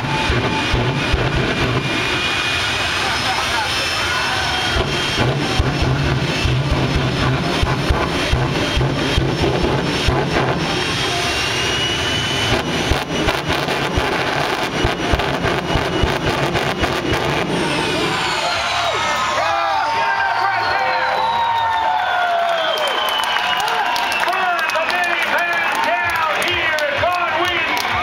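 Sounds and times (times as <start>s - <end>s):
jet engine roaring with crackling: 0.0s - 19.7s.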